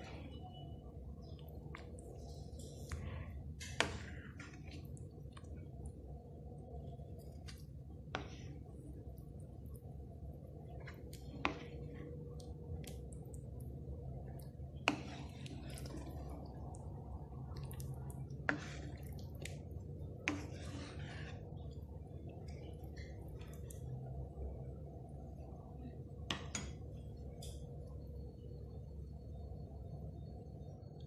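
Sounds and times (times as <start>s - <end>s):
steady low hum: 0.0s - 31.0s
liquid sloshing: 1.2s - 9.8s, 10.5s - 24.2s
spoon stirring soup in wok: 1.4s - 6.1s, 10.5s - 24.2s.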